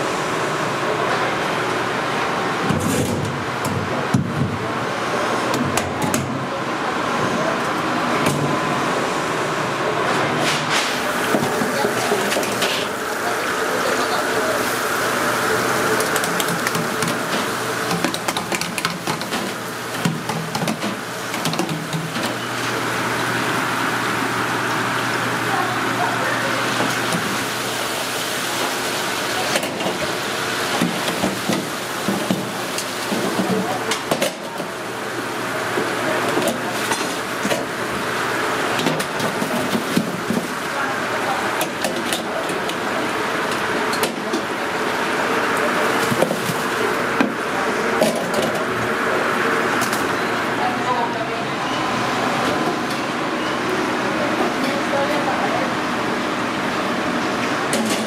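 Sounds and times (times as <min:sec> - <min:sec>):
ventilation fans rushing: 0:00.0 - 0:58.0
oil sizzling and bubbling: 0:10.7 - 0:50.6.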